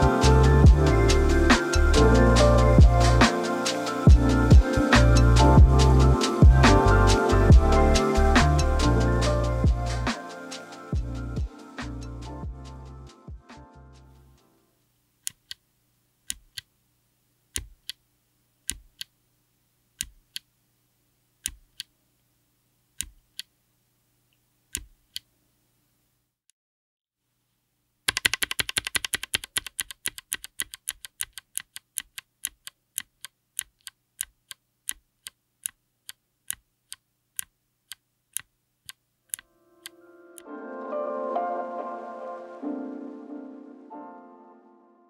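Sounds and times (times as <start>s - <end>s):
keyboard switch clicks: 24.8s - 25.3s.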